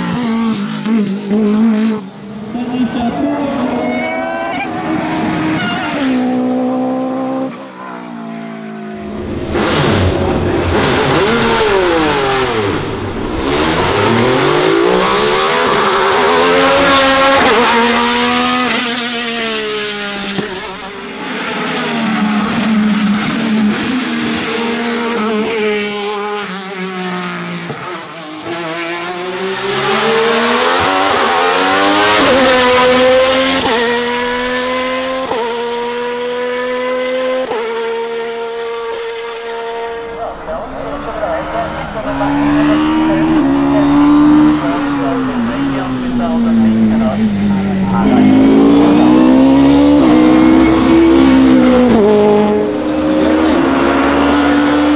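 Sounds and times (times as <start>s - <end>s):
rally car engine pulling away: 0.0s - 54.9s
racing engine revving hard: 8.9s - 54.9s.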